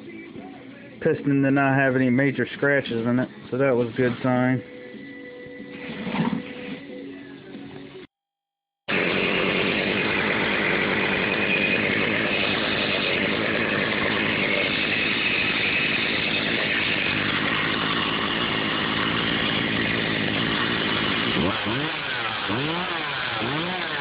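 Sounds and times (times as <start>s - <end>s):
chainsaw engine running steadily: 8.9s - 24.0s.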